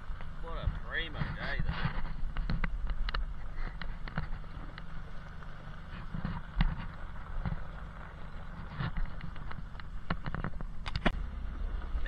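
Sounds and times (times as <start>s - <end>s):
truck engine rumble: 0.0s - 12.0s.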